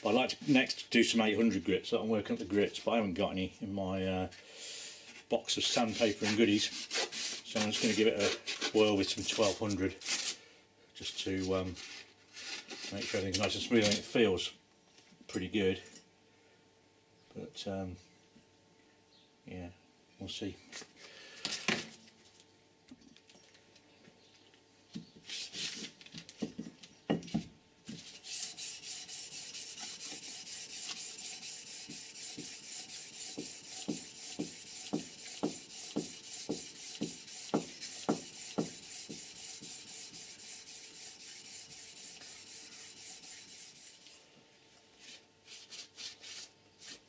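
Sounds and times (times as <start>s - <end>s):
sandpaper rubbing back and forth: 5.6s - 10.4s, 25.2s - 25.9s, 28.0s - 44.2s, 45.0s - 47.0s.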